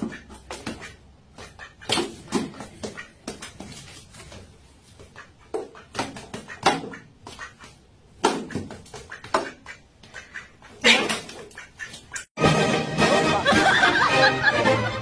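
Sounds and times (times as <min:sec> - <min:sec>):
duck quacking: 0:00.0 - 0:03.5, 0:05.0 - 0:12.3.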